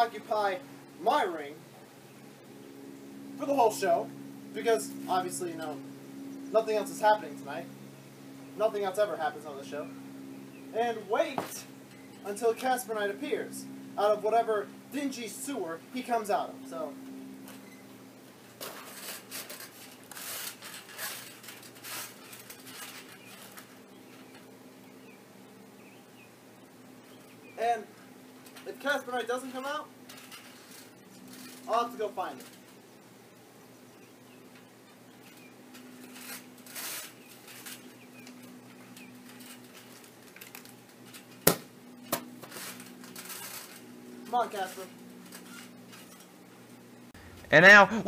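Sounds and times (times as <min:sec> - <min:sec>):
rustling and shuffling on trampoline: 0:00.0 - 0:07.8, 0:08.4 - 0:47.9
rustling on trampoline mat: 0:18.4 - 0:24.5, 0:28.5 - 0:32.9, 0:35.1 - 0:46.5
sharp knocks: 0:41.4 - 0:42.3.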